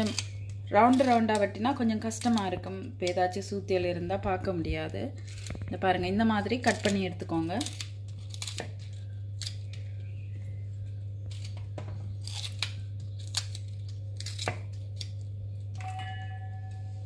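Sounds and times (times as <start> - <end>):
knife slicing okra with crunch: 0.0 - 2.5, 12.2 - 15.2
steady low hum: 0.0 - 17.0.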